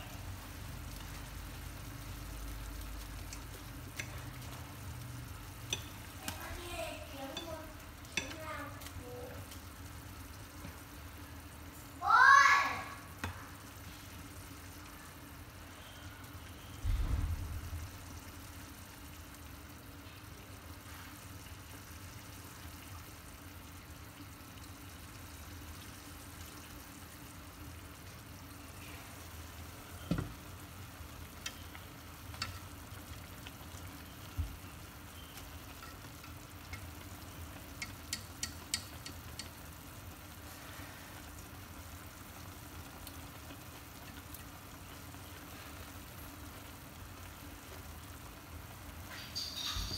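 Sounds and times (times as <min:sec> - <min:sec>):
soup bubbling in pot: 0:00.0 - 0:49.6
small ticks: 0:37.6 - 0:39.7.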